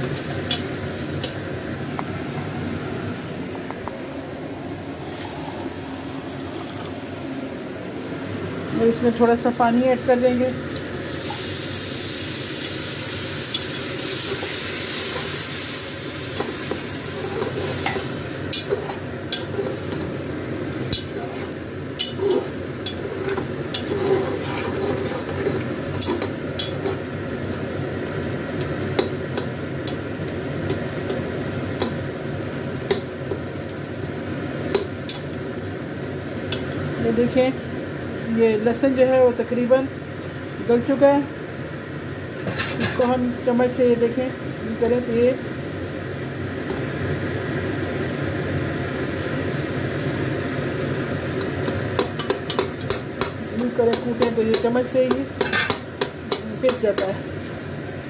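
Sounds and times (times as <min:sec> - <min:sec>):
meat sizzling: 0:00.0 - 0:02.9, 0:04.8 - 0:06.9, 0:09.1 - 0:38.6, 0:43.1 - 0:58.0
spoon scraping metal pot: 0:21.0 - 0:27.0, 0:55.4 - 0:55.8.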